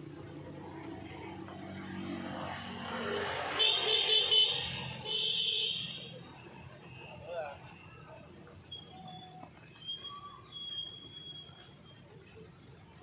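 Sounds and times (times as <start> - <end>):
vehicle engine humming: 0.0 - 13.0
car horn honking: 3.6 - 6.2.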